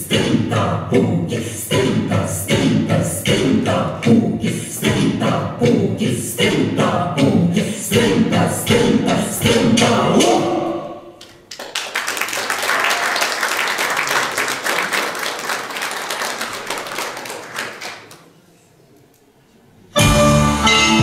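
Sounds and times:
choir singing: 0:00.0 - 0:11.2
audience applauding: 0:11.2 - 0:18.4.

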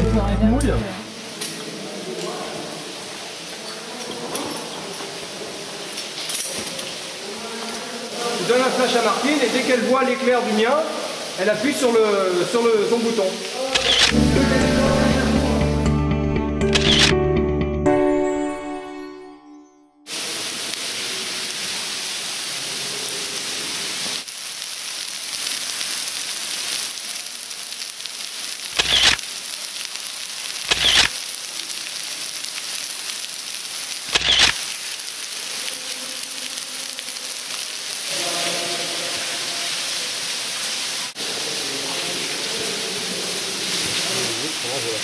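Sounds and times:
music: 0:00.0 - 0:01.0, 0:14.1 - 0:20.1
waterfall rushing: 0:00.0 - 0:15.9, 0:20.1 - 0:24.3, 0:25.0 - 0:29.7, 0:30.3 - 0:45.0.

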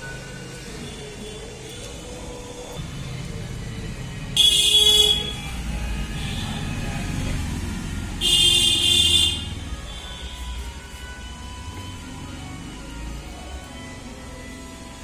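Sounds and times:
low traffic rumble: 0:00.0 - 0:15.0
vehicle horn blasts: 0:04.4 - 0:05.6, 0:08.2 - 0:10.5.

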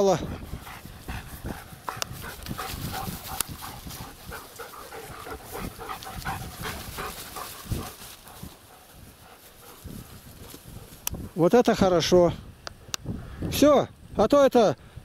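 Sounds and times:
dog panting: 0:00.2 - 0:11.1.

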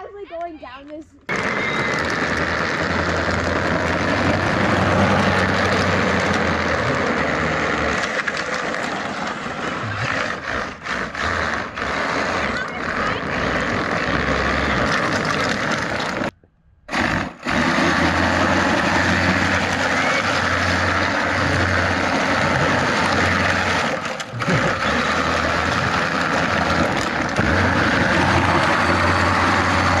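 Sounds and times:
wind and road noise: 0:01.2 - 0:30.0.

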